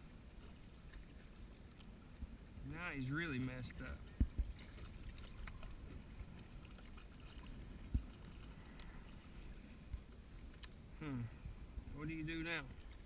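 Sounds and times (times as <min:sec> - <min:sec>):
wind and water rumble: 0:00.0 - 0:13.0
faint clicks: 0:04.1 - 0:09.3, 0:09.9 - 0:10.8.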